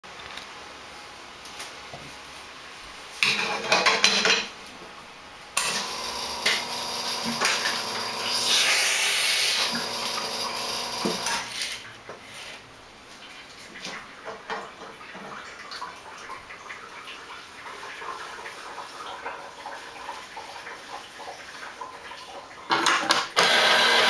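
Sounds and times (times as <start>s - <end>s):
espresso machine pump humming: 5.6s - 11.6s, 23.4s - 24.0s.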